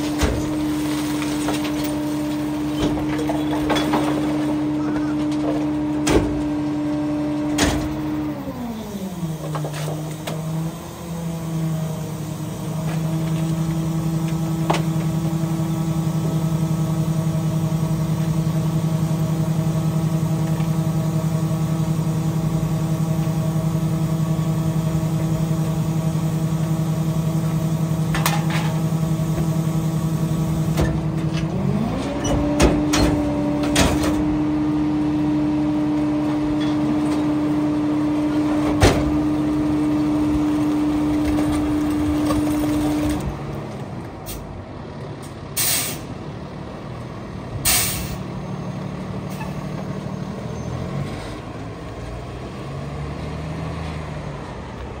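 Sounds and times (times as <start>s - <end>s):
garbage truck engine: 0.0s - 55.0s
air brake hisses: 45.6s - 46.1s, 47.6s - 48.2s.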